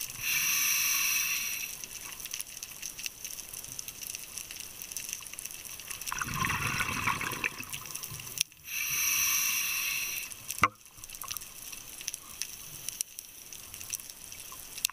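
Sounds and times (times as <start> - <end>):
regulator inhalation hiss: 0.0 - 2.2, 8.6 - 10.6
exhaled bubbles burbling: 6.0 - 8.1.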